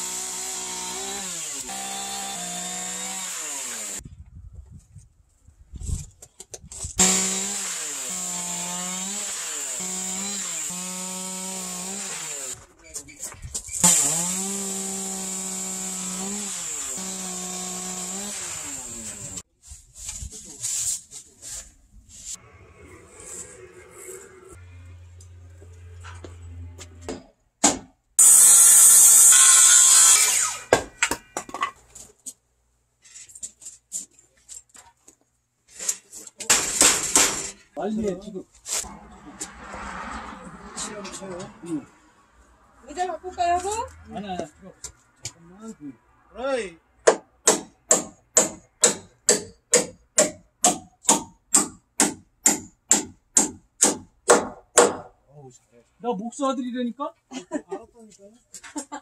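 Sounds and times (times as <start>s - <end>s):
circular saw cutting wood: 0.0s - 4.0s, 7.0s - 12.6s, 13.8s - 19.4s, 22.3s - 27.3s, 28.2s - 31.4s, 38.7s - 42.2s
hammer striking timber beam: 27.0s - 31.6s, 36.5s - 37.5s, 47.0s - 55.2s.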